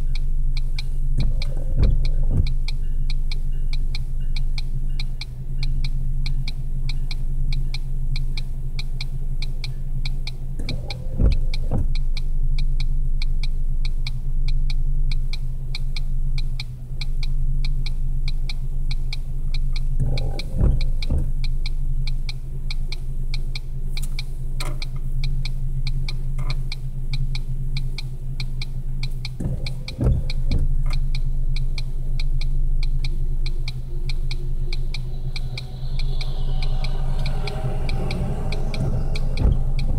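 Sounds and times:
windshield wipers swishing: 0:00.0 - 0:02.7, 0:10.6 - 0:12.0, 0:19.9 - 0:21.5, 0:27.6 - 0:39.9
car engine idling: 0:00.0 - 0:39.9
even ticking: 0:00.0 - 0:39.9.

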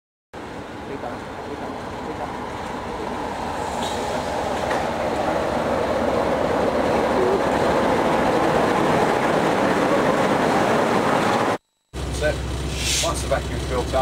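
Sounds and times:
diesel locomotive engine running: 0:00.4 - 0:14.0.

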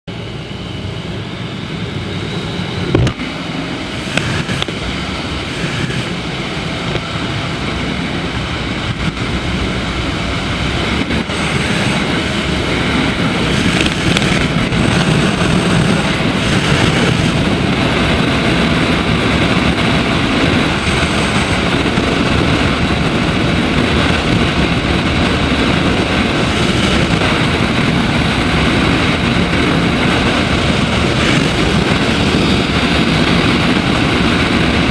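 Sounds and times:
motorcycle engine running: 0:02.8 - 0:34.9.

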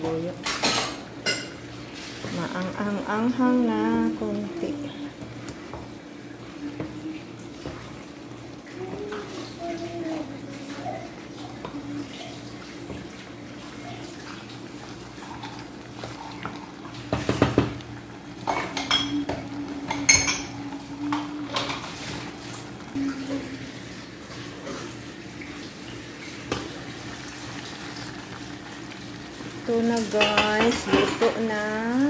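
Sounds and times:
metal clanking on cooking pot: 0:30.0 - 0:31.5.

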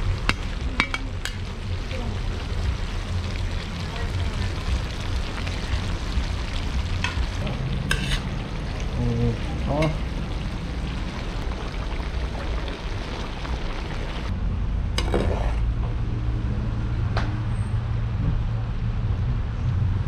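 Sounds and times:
vegetables sizzling in oil: 0:00.0 - 0:14.3
low rumble: 0:00.0 - 0:20.0.

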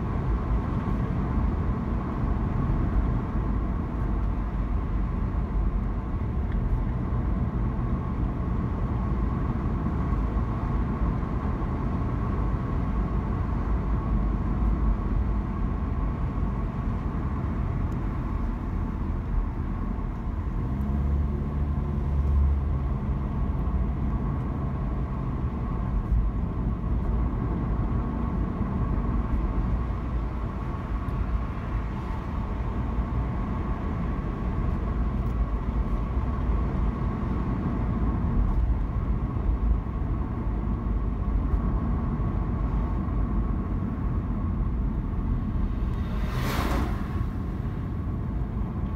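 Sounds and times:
car engine and tyre rumble: 0:00.0 - 0:48.9
brief rush of noise: 0:45.7 - 0:48.0.

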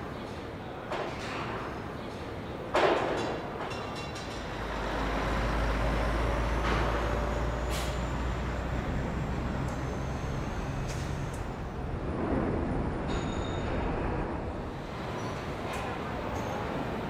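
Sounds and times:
diesel truck engine rumbling: 0:04.4 - 0:13.1.

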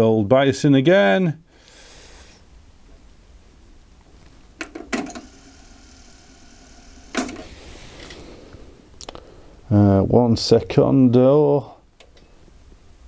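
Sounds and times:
tape motor whirring: 0:05.0 - 0:08.2.

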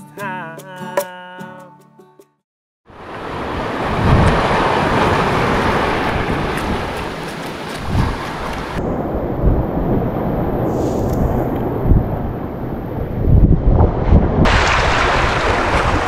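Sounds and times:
surf washing up the shore: 0:02.9 - 0:13.0, 0:14.5 - 0:16.0
wind buffeting the microphone: 0:03.5 - 0:16.0.

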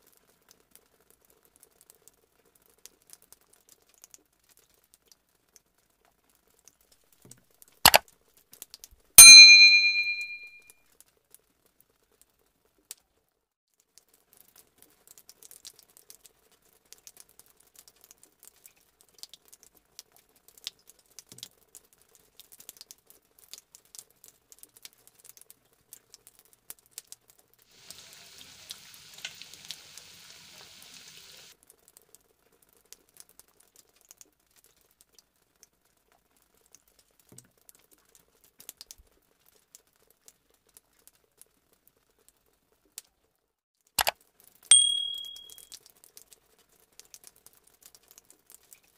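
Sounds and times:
frying oil crackling and sizzling: 0:00.0 - 0:06.8, 0:13.7 - 0:43.2, 0:45.7 - 0:48.9
metal spoon clinking on dish: 0:09.2 - 0:10.5, 0:44.7 - 0:45.6.

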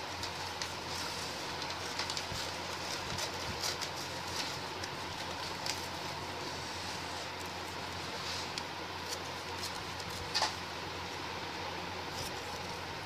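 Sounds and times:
newspaper rustling: 0:00.0 - 0:10.8.

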